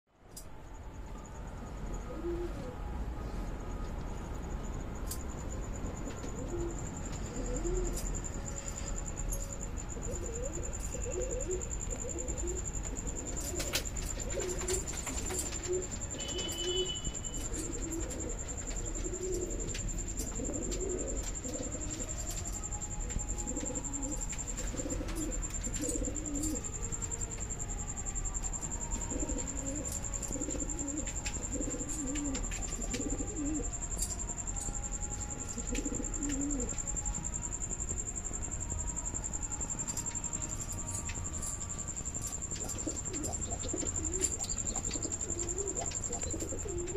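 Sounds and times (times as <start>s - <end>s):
steady high-pitched whine: 0.2s - 46.9s
pigeons cooing: 6.3s - 8.1s, 9.9s - 22.6s, 23.4s - 26.7s, 28.9s - 33.8s, 35.5s - 36.8s, 42.6s - 46.9s.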